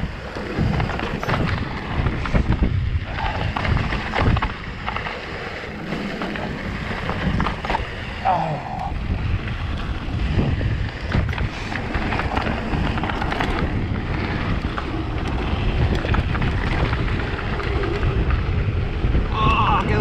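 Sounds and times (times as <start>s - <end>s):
tyres rumbling on dirt trail: 0.0s - 20.0s
wind buffeting microphone: 0.0s - 20.0s
bike and stones clattering: 0.2s - 8.0s, 10.7s - 18.6s.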